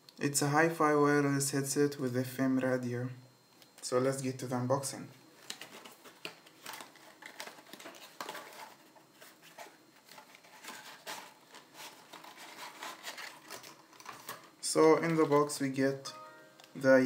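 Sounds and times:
packaging rustling and scraping: 5.3s - 15.6s.

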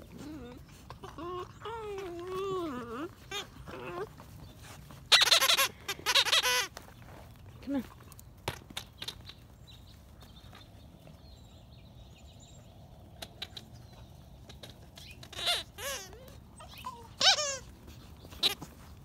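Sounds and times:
puppies yipping and whining: 0.0s - 6.7s, 13.4s - 19.0s.

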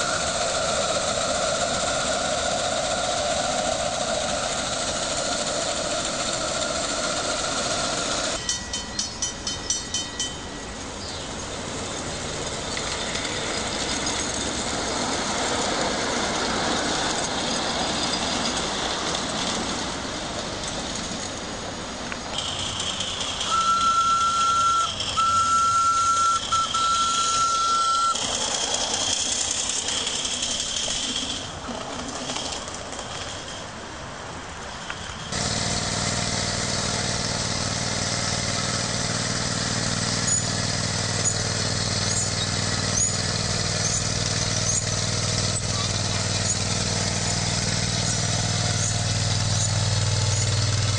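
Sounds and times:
small locomotive motor whining: 0.0s - 50.9s
crossing bell ringing: 8.3s - 14.8s, 21.0s - 29.0s
train whistle blasts: 23.4s - 28.2s.

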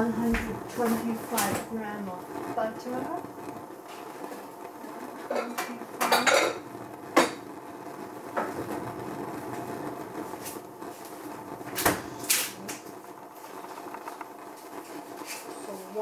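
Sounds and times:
faint steady hum: 0.0s - 16.0s
pots and utensils clinking: 5.2s - 7.4s.

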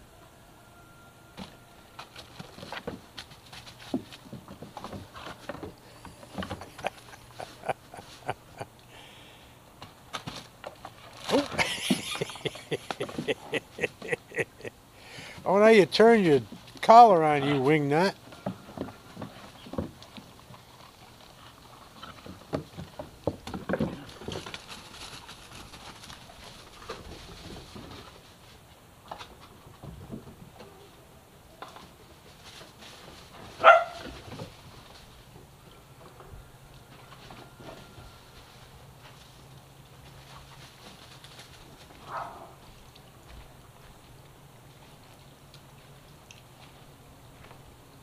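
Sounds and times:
puppies scuffling in dry leaves: 24.0s - 28.6s, 37.9s - 43.3s.

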